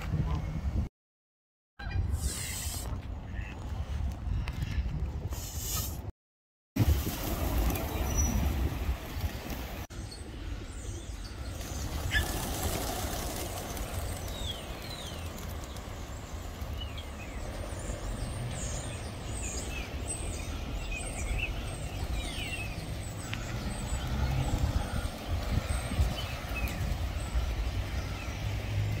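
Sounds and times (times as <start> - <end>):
low town rumble: 6.9 - 29.0.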